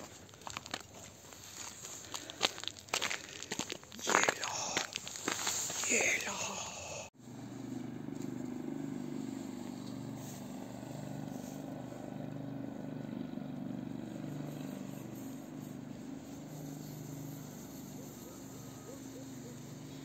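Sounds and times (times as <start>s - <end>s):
vehicle engine running: 7.2s - 20.0s.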